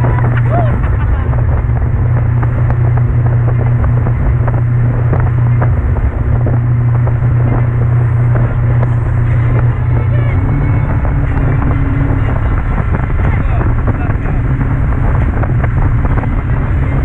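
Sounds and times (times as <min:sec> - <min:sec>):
hull slapping the water: 0:00.0 - 0:17.0
speedboat engine drone: 0:00.0 - 0:17.0.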